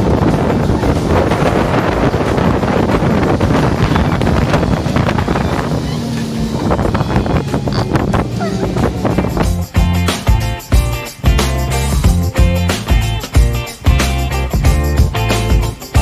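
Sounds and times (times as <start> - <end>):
rushing churning water: 0.0 - 10.2
wind buffeting microphone: 0.0 - 10.4
low engine hum: 0.0 - 13.1.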